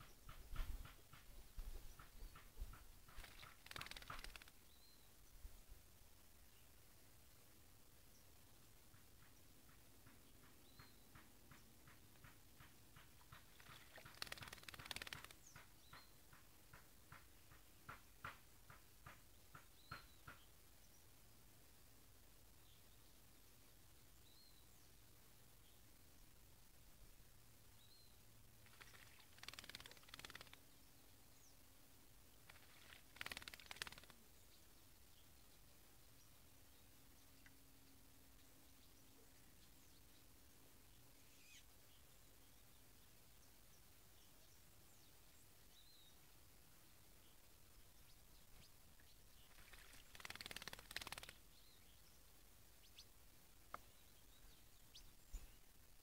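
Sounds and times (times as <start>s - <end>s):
bird splashing in water: 2.4s - 4.6s, 13.0s - 15.6s, 28.6s - 30.6s, 32.4s - 34.2s, 49.5s - 51.4s
faint short bird chirp: 41.2s - 42.0s.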